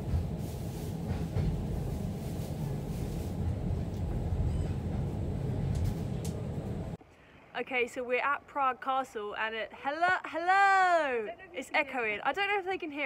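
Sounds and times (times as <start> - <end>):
tram rumbling on tracks: 0.0 - 7.0.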